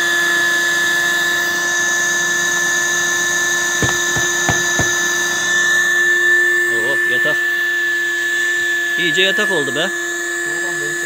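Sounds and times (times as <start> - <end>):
light knocks: 3.8 - 5.0.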